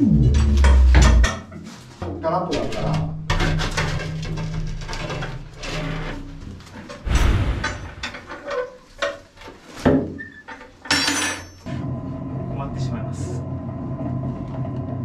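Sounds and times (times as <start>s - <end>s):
loud metal clank: 2.6s - 8.6s
metal cover scraping and clattering: 2.6s - 11.7s.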